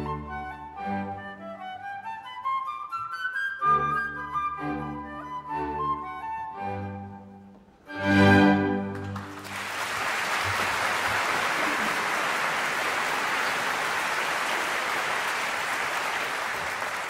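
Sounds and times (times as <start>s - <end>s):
audience applauding: 8.9s - 17.0s.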